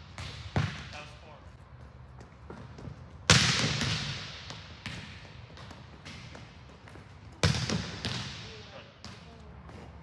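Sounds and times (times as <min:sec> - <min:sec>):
volleyball struck by hand: 0:03.2 - 0:06.5, 0:07.4 - 0:08.4.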